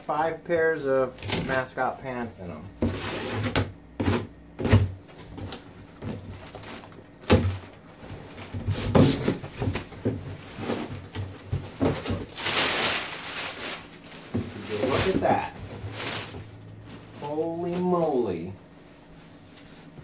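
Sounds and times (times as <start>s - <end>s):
cardboard flaps knocking and scraping: 2.8s - 13.0s, 14.2s - 16.5s
packing paper rustling: 5.1s - 18.1s.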